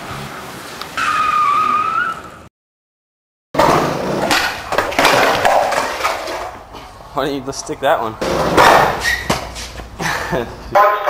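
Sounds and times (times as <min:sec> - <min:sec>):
skateboard clattering down stairs: 0:03.6 - 0:06.7, 0:08.2 - 0:09.5
skateboard wheels rolling on concrete: 0:03.6 - 0:10.6.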